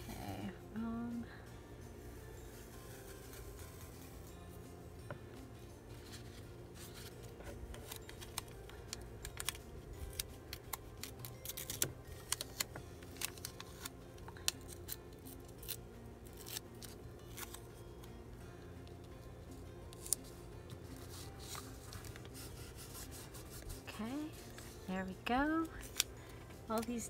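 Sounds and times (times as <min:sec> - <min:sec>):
tape crackling and tearing: 0:02.9 - 0:04.2, 0:06.0 - 0:18.1, 0:19.9 - 0:24.9, 0:25.6 - 0:26.9.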